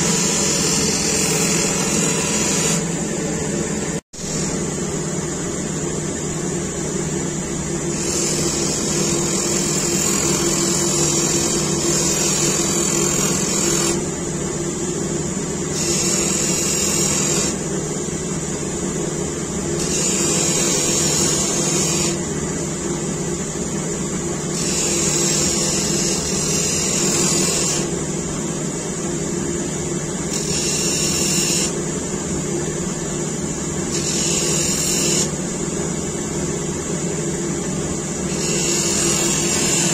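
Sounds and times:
grinding machine motor humming: 0.0 - 5.9, 38.2 - 39.9.

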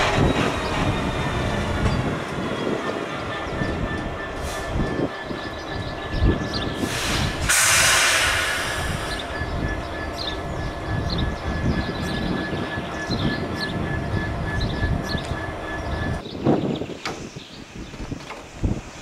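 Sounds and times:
diesel locomotive engine running: 0.0 - 16.3
small birds chirping: 1.7 - 7.4, 9.0 - 19.0
loud hiss of air: 6.8 - 9.3.

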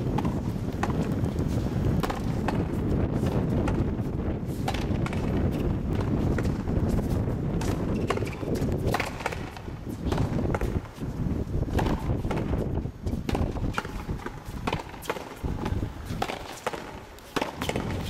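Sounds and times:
rubber ball struck by racquets: 0.1 - 1.2, 1.9 - 2.7, 4.7 - 6.6, 11.7 - 12.6, 13.2 - 18.0.

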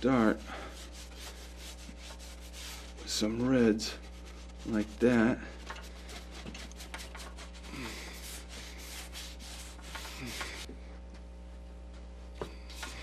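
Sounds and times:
paintbrush scrubbing on canvas: 0.0 - 10.7
low steady hum: 0.0 - 13.0.

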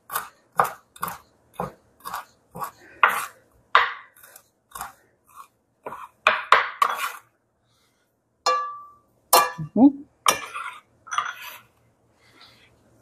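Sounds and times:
knife chopping on wooden board: 0.1 - 4.9.

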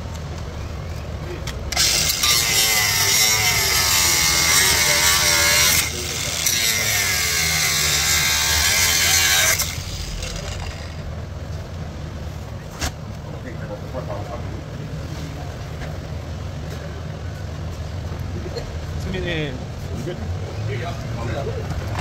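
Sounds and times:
steady low hum: 0.0 - 22.0
rotary tool cutting plastic: 1.7 - 11.0.

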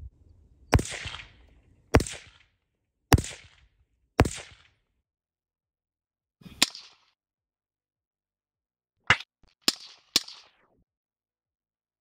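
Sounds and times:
suppressed rifle shots: 0.7 - 2.4, 4.2 - 4.6.

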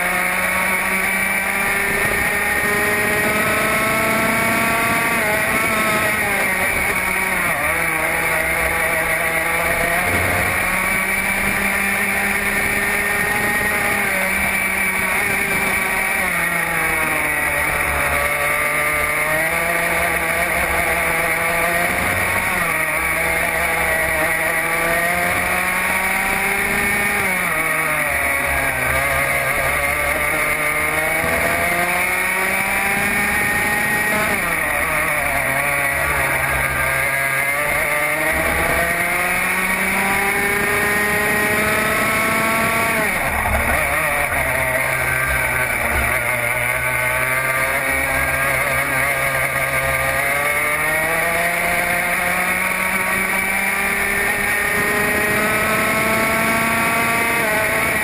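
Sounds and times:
go-kart engine revving: 0.0 - 58.0.

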